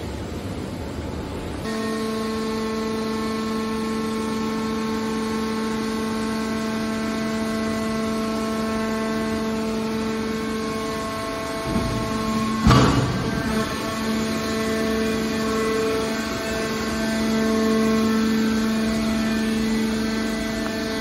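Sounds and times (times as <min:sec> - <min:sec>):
hydraulic pump whine: 0:01.5 - 0:21.0
rough machine noise: 0:01.6 - 0:21.0.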